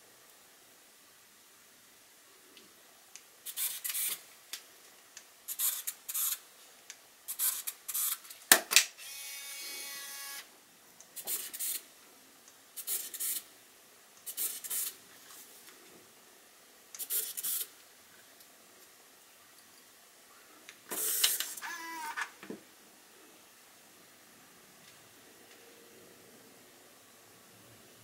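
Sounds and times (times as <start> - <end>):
camera lens motor whirs: 3.5 - 4.2, 5.6 - 6.4, 7.3 - 8.2, 9.0 - 10.5, 21.0 - 22.2
film advance motor whir: 3.5 - 4.2, 9.0 - 10.5, 21.6 - 22.2.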